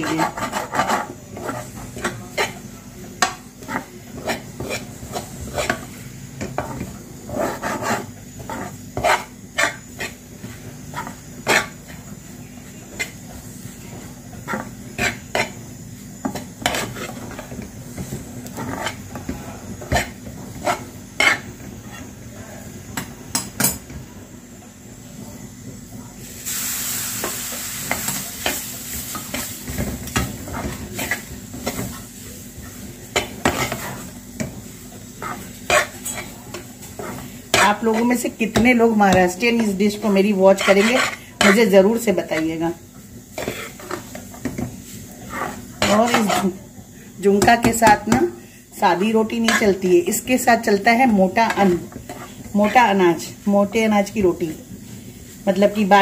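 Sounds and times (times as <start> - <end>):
loud sizzling hiss: 26.2 - 33.3.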